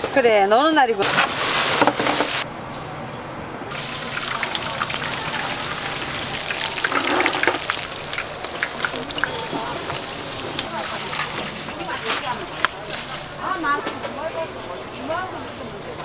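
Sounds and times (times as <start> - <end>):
hot oil sizzling and crackling: 1.0 - 2.4, 3.7 - 13.3.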